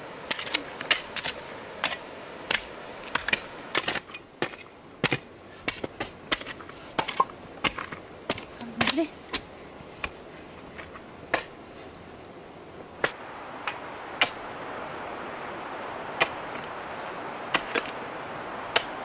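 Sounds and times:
steady hiss: 0:00.0 - 0:19.0
digging tool chopping tree: 0:00.3 - 0:10.2, 0:11.3 - 0:11.6, 0:13.0 - 0:14.4, 0:17.5 - 0:18.0, 0:18.7 - 0:19.0.

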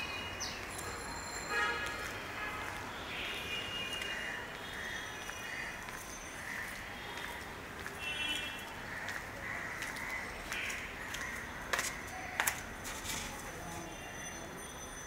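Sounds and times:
crows cawing: 0:04.1 - 0:07.3, 0:08.8 - 0:12.6.

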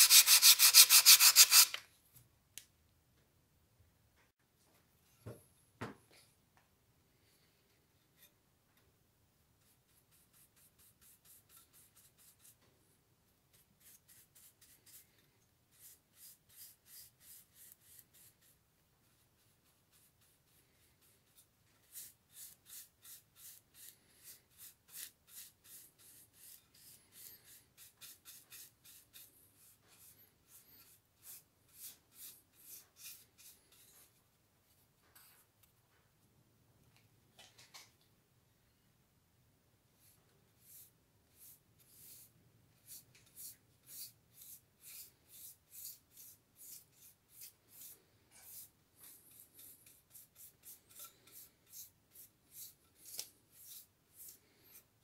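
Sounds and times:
paintbrush strokes on wood: 0:13.5 - 0:35.5, 0:40.0 - 0:54.9.

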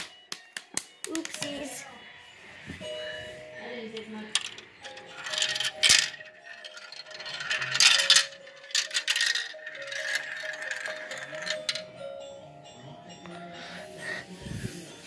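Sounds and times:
marble clattering down plastic run: 0:04.4 - 0:11.8.

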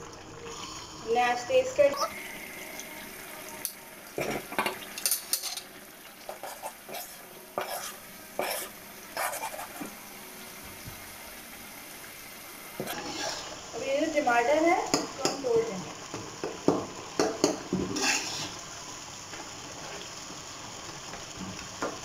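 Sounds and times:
chicken sizzling in a pan: 0:00.0 - 0:22.0
metal spoon scraping pan: 0:06.3 - 0:09.9, 0:17.9 - 0:18.6.

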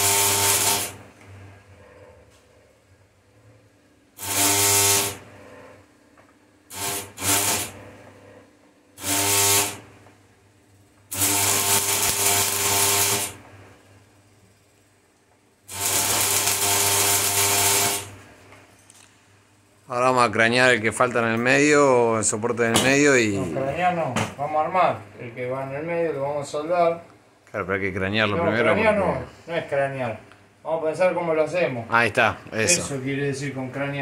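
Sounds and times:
crackling buzzing welding arc: 0:00.0 - 0:01.3, 0:04.1 - 0:08.2, 0:08.9 - 0:23.4.

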